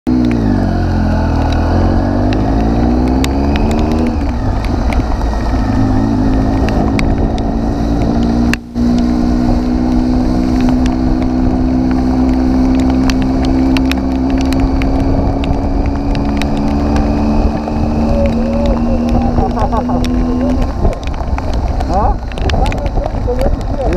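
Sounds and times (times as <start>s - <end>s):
motorcycle engine running: 0.1s - 23.9s
hail ticking on bike: 10.4s - 23.9s.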